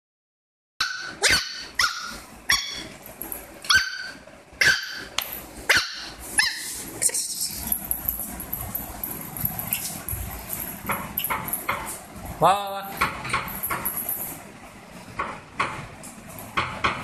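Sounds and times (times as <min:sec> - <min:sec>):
puppy yapping: 0:00.8 - 0:02.9, 0:03.6 - 0:05.1, 0:05.7 - 0:06.8.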